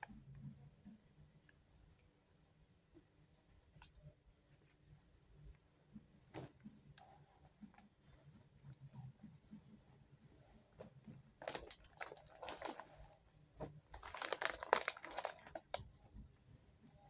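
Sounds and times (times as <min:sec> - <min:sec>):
plastic packaging crinkling: 0:11.4 - 0:13.0, 0:13.9 - 0:15.8.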